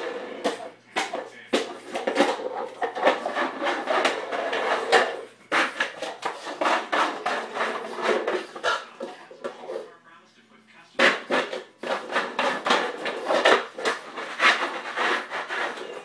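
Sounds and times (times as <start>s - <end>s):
bowl clattering on hard floor: 11.0s - 16.0s.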